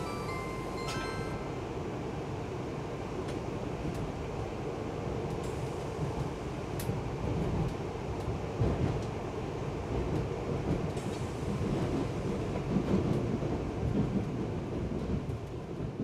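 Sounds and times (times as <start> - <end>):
train wheels rumbling: 5.0 - 16.0.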